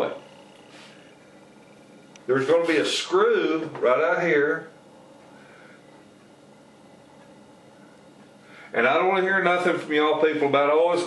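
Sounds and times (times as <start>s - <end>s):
low room hiss: 0.0s - 11.0s.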